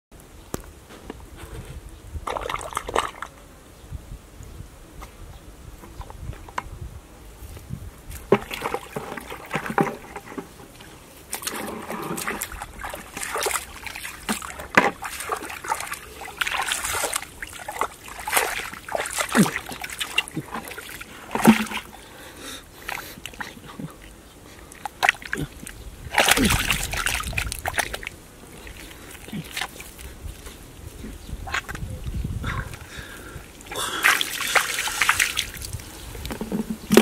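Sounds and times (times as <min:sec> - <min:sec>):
muddy water splashing: 0:02.2 - 0:03.3, 0:08.1 - 0:37.0
hands digging in mud: 0:11.3 - 0:22.0, 0:24.8 - 0:30.6, 0:33.6 - 0:35.8.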